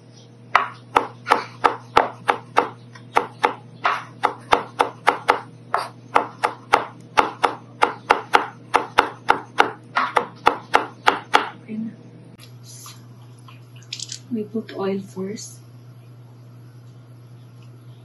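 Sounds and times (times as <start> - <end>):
knife chopping on cutting board: 0.6 - 11.5.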